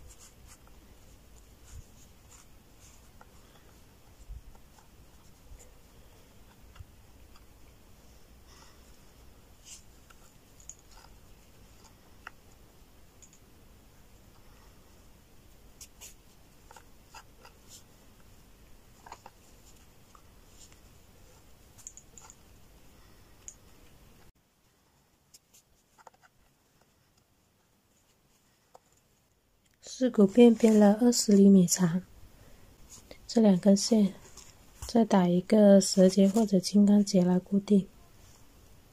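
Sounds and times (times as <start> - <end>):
cord rustling and clicking: 0.0 - 7.8, 8.9 - 13.5, 15.5 - 22.7, 24.9 - 31.5, 32.8 - 35.1
background hiss: 0.0 - 38.9.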